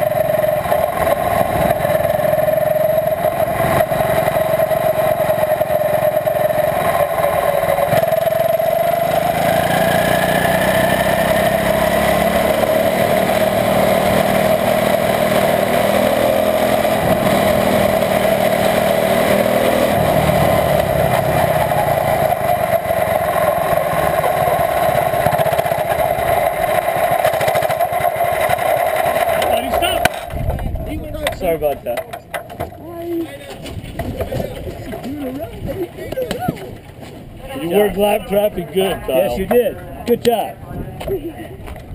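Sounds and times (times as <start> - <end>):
small engine running steadily: 0.0 - 41.9.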